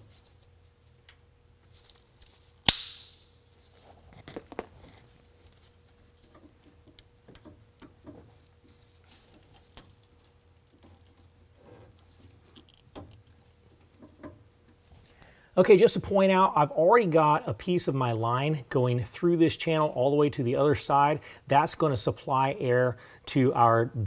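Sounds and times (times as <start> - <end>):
plastic tube snapping: 2.6 - 3.2.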